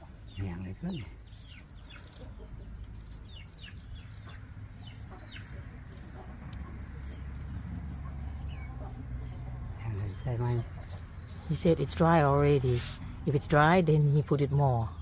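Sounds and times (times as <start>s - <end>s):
chickens calling: 0.0s - 9.8s.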